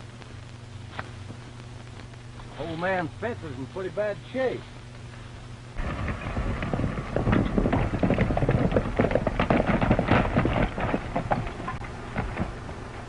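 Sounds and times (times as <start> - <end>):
low hum: 0.0 - 13.0
horses galloping on dirt: 5.8 - 13.0.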